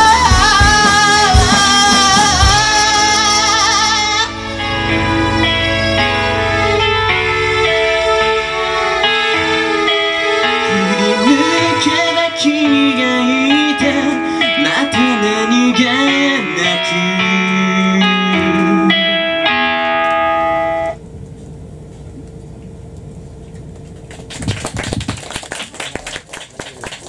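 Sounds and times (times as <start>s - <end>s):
rock band playing: 0.0s - 21.0s
low hum: 2.9s - 11.9s, 17.3s - 26.0s
audience applause: 24.0s - 27.0s.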